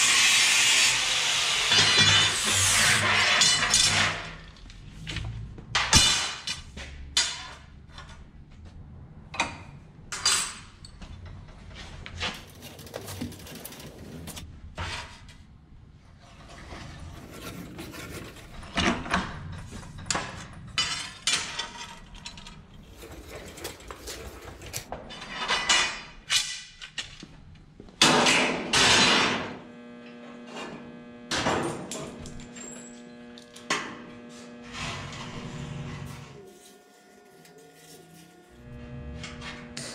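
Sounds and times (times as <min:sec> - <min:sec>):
steel tubing clanking and scraping: 0:16.2 - 0:26.7
steady hum: 0:29.6 - 0:39.9.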